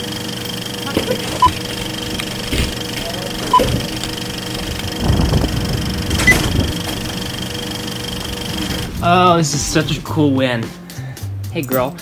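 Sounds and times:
steady hum: 0.0 - 11.0
short beeps: 3.5 - 3.9.

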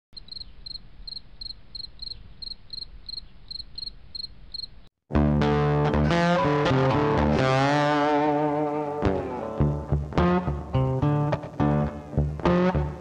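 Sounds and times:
cricket chirping: 0.2 - 4.9
loud guitar music: 5.1 - 13.0.

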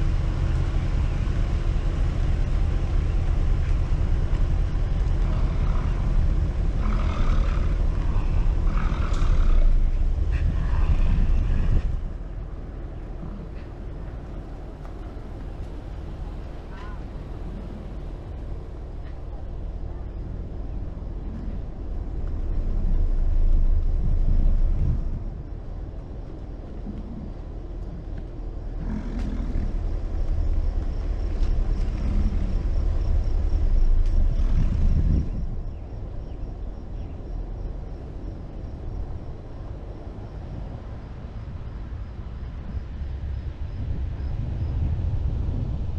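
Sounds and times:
low engine rumble: 0.0 - 45.9
wind on microphone: 0.0 - 45.9
bison grunting: 4.9 - 12.2, 28.6 - 30.2, 31.4 - 35.6.

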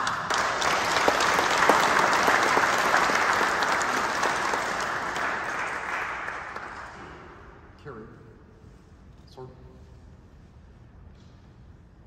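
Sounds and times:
people applauding: 0.0 - 7.4.

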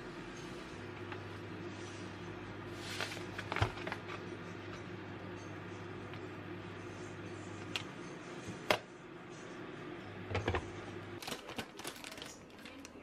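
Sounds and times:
plastic package crinkling: 11.2 - 13.0.

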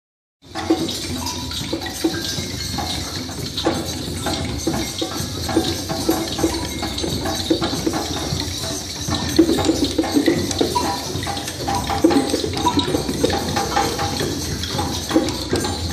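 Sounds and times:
hand shakers rattling: 0.6 - 15.9.

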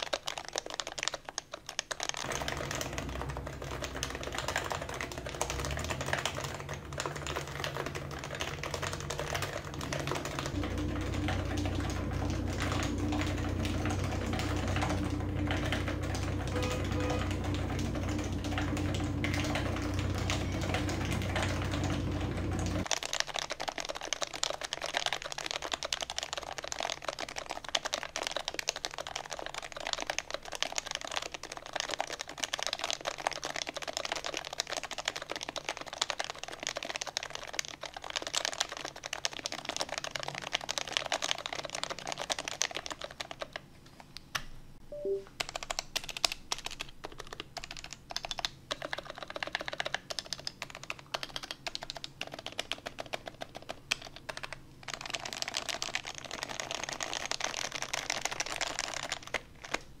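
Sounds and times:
fast keyboard typing: 0.0 - 44.4, 45.0 - 60.0.

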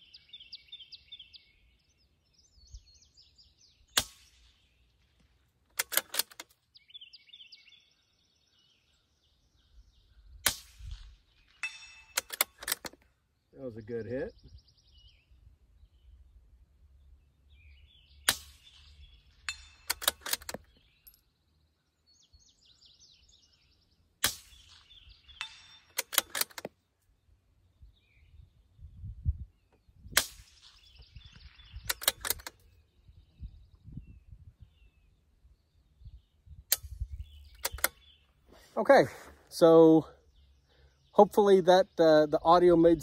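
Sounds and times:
suppressed rifle shots: 3.9 - 4.8, 10.4 - 13.0, 18.3 - 18.9, 19.5 - 20.8, 24.2 - 26.7, 30.1 - 31.0
quick run of clicks: 5.7 - 6.6, 19.9 - 20.8, 25.9 - 26.8, 31.8 - 32.6, 37.6 - 38.0.

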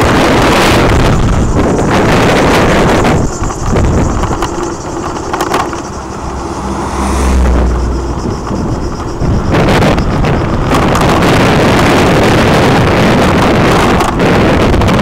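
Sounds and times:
vehicle engine and tyre noise: 0.0 - 15.0
wind buffeting microphone: 0.0 - 15.0
deeper hum: 0.8 - 11.5.

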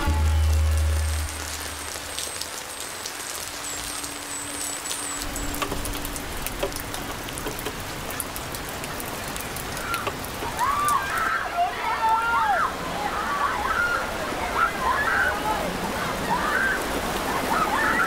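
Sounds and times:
steady rain falling: 0.0 - 18.0
sharp drip ticks: 2.2 - 10.6.

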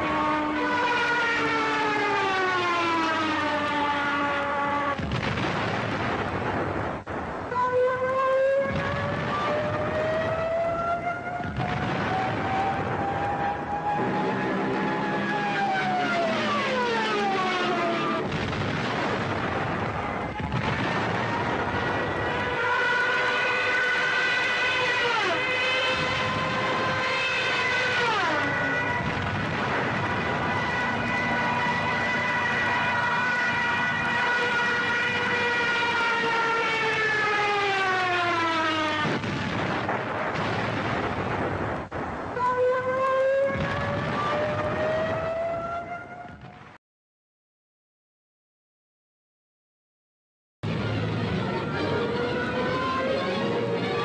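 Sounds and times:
air-raid siren wailing: 0.0 - 5.0, 7.2 - 39.6, 42.2 - 46.5, 50.6 - 54.0
rumbling explosion: 5.0 - 7.5, 8.7 - 10.4, 11.4 - 14.7, 17.8 - 22.6, 28.8 - 31.7, 39.0 - 42.4, 43.6 - 45.3.

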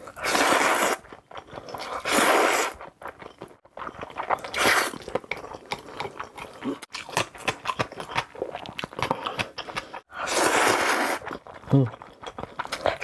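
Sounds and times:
loud noodle slurp: 0.0 - 1.2, 1.8 - 2.8, 4.3 - 5.1, 10.1 - 11.4
wet chewing and lip smacks: 2.8 - 10.1, 11.2 - 13.0.

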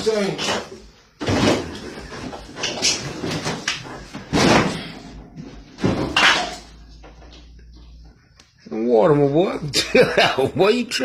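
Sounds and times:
refrigerator doors banging: 0.0 - 6.7.

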